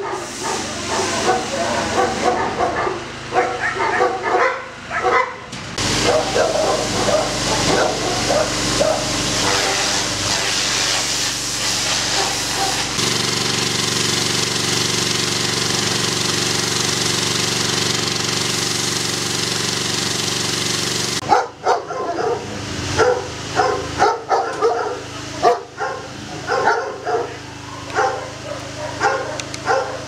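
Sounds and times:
pressure washer water jet hissing: 0.0 - 5.0, 5.6 - 30.0
dogs barking: 0.0 - 10.7, 12.0 - 12.9, 21.2 - 30.0
pressure washer motor humming: 0.0 - 30.0.

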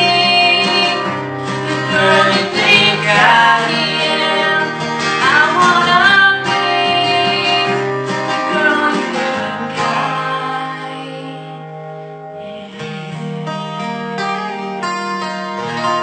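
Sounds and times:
woman singing: 0.0 - 11.6, 12.4 - 13.1
acoustic guitar strumming: 0.0 - 16.0.

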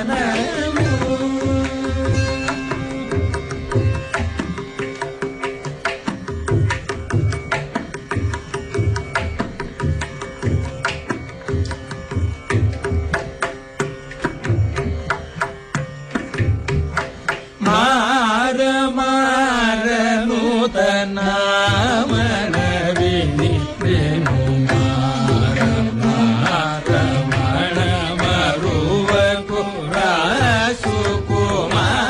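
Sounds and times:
man singing: 0.0 - 3.0, 17.6 - 32.0.

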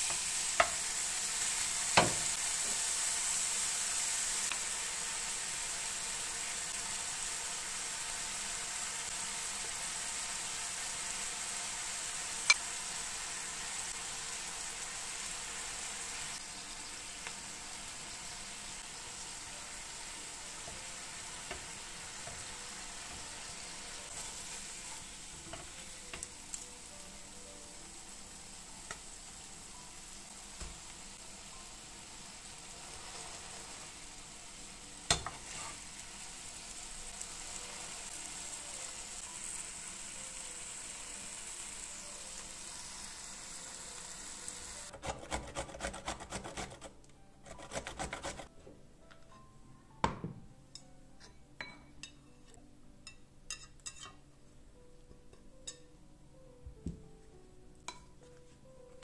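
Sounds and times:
patties sizzling on a griddle: 0.0 - 44.9
grating on a metal grater: 44.9 - 48.5.

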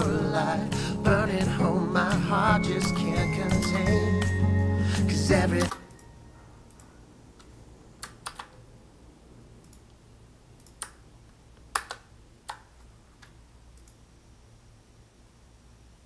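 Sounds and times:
faint steady hum: 0.0 - 16.0
keyboard and mouse clicks: 5.6 - 6.1, 6.7 - 8.7, 9.6 - 10.0, 10.6 - 14.0.

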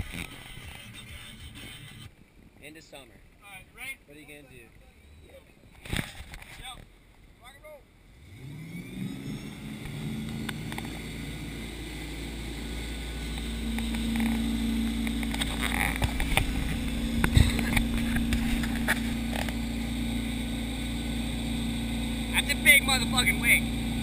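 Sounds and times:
boat engine pulling under load: 0.0 - 24.0
churning wake rushing: 8.2 - 24.0.

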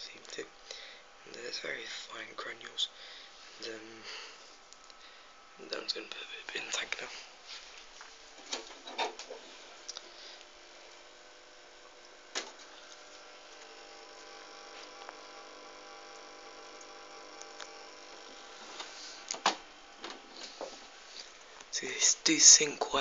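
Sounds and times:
electrical hum: 0.0 - 23.0.

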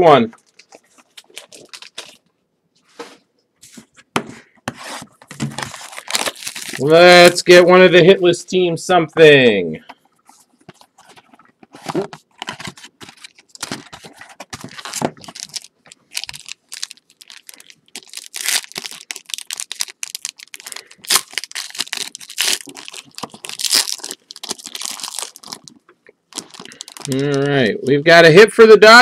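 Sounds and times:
wrapper tearing and crinkling: 0.4 - 2.2, 5.4 - 7.4, 11.0 - 27.6
cards rustling and clicking: 9.9 - 25.8.

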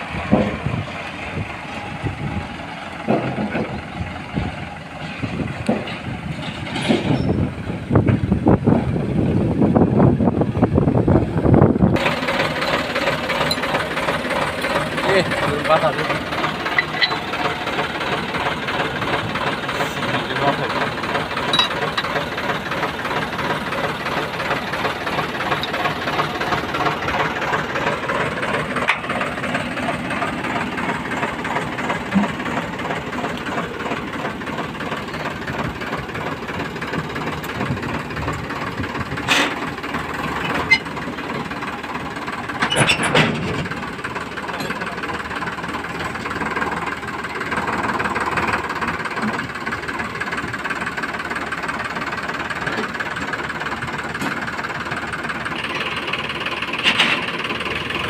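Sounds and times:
tractor diesel engine idling: 0.0 - 58.0
short metallic clanks: 5.0 - 7.4, 16.7 - 17.2, 21.4 - 22.1, 42.6 - 43.7.

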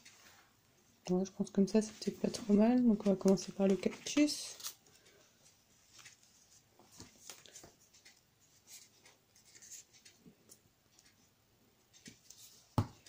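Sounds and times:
paper rustling and tapping: 2.3 - 4.4.

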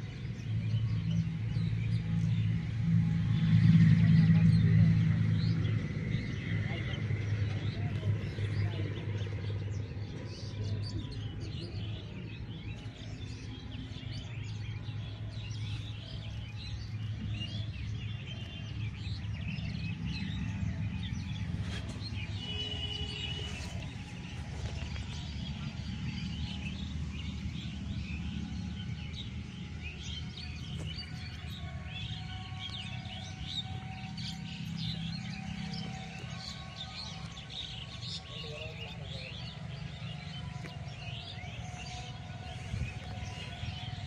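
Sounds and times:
small birds chirping: 0.0 - 44.0.

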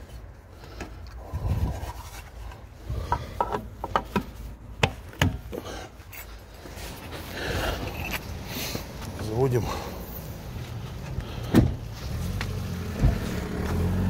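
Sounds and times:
rubbing and handling noises: 0.0 - 5.2.

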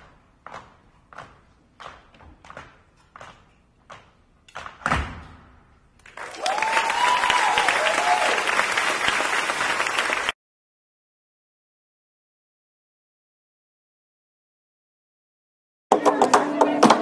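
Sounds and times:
audience applause: 6.0 - 10.4
audience cheering: 6.2 - 10.3.

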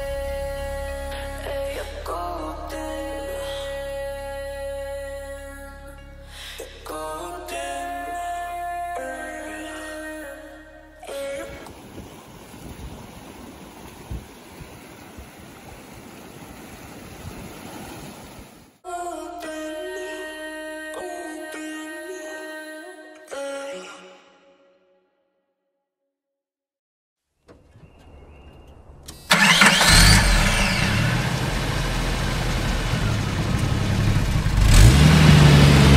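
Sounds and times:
low rumbles: 0.0 - 11.1, 27.5 - 35.9
mountain stream rushing: 11.1 - 18.8
car engine starting and revving: 27.6 - 35.9.

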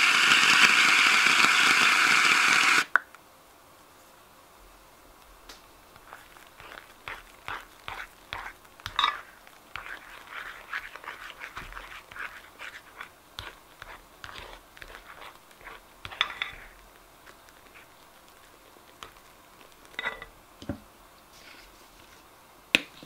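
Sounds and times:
foam squishing while stirred: 5.8 - 20.1.

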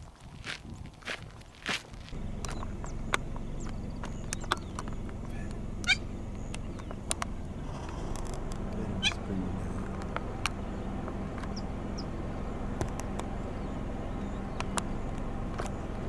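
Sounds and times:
steady low hum: 2.1 - 16.0
high chirps: 2.2 - 12.2
sharp clicks: 2.4 - 9.2, 12.8 - 13.4, 14.5 - 16.0
wavering animal call: 3.6 - 6.6, 7.5 - 10.0.

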